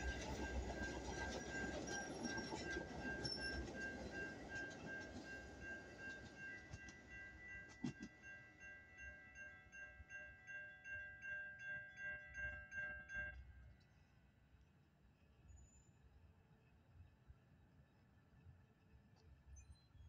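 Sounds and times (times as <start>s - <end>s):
train rumble: 0.0s - 8.3s
crossing warning bells ringing: 0.0s - 13.4s.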